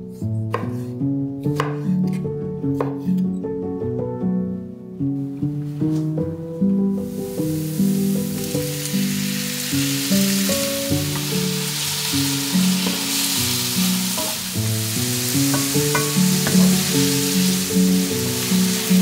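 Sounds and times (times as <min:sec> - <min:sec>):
background music: 0:00.0 - 0:19.0
vegetables sizzling in a pan: 0:07.0 - 0:19.0.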